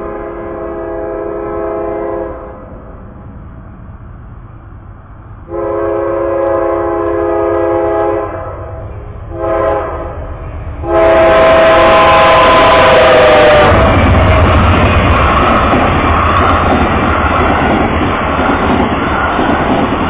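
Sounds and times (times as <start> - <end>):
train air horn blasts: 0.0 - 2.7, 5.5 - 14.6
rushing noise of arriving train: 0.0 - 20.0.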